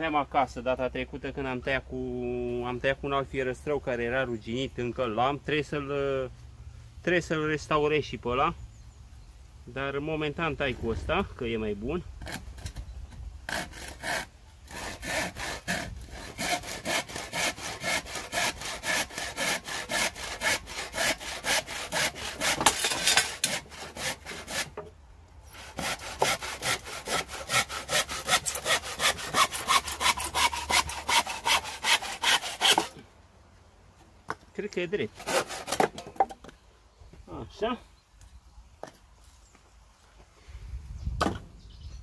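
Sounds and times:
handsaw cutting wood: 13.5s - 24.8s, 25.5s - 33.0s, 35.2s - 36.0s.

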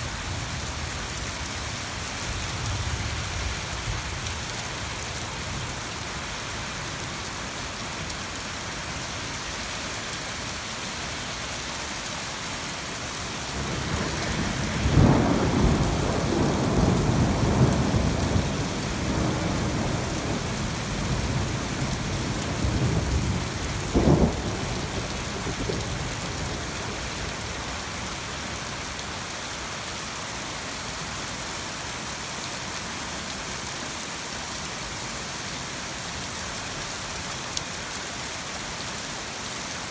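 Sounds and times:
steady rain falling: 0.0s - 39.9s
thunder rumbling: 13.5s - 26.6s.

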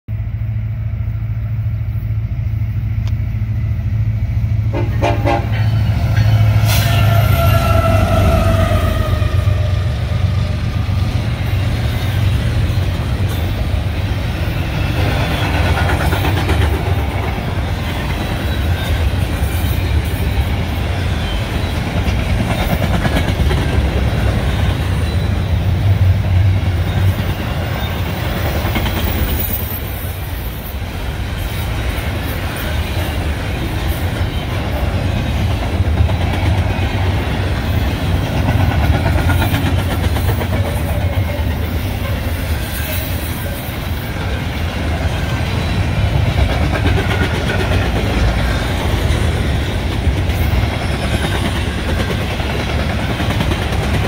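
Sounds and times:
diesel locomotive engine rumble: 0.1s - 54.0s
train wheels on rails: 0.2s - 54.0s
train horn blast: 4.6s - 11.0s.

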